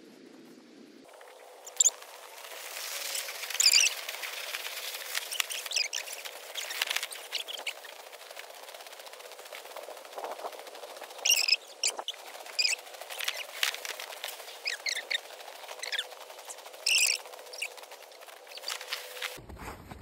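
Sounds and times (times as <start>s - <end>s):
small bird chirping: 1.1s - 8.2s, 11.0s - 19.4s.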